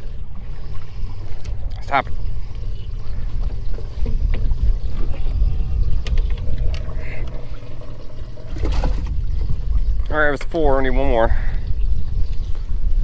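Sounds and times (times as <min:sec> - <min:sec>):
wind rumble on microphone: 0:00.0 - 0:13.0.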